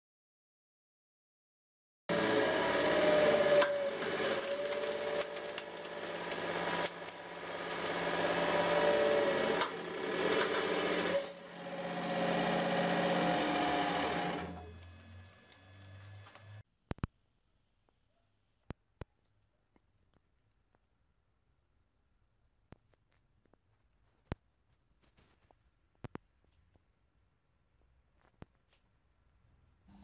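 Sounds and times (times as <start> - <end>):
glass crackling and crunching: 4.4 - 7.2.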